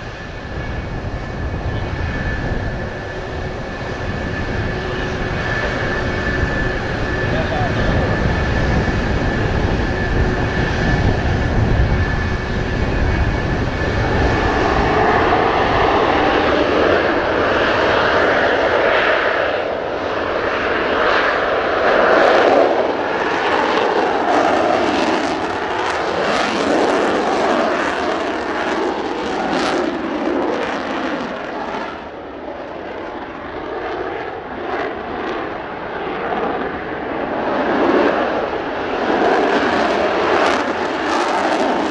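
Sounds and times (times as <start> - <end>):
wind hitting microphone: 0.0 - 32.1
jet engines roaring: 0.0 - 41.9.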